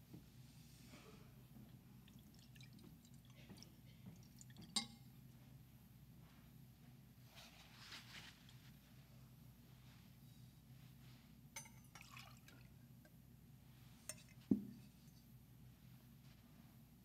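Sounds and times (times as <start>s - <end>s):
water trickling: 2.0s - 4.9s
glass and metal vessels clinking: 4.6s - 5.0s, 11.6s - 12.4s.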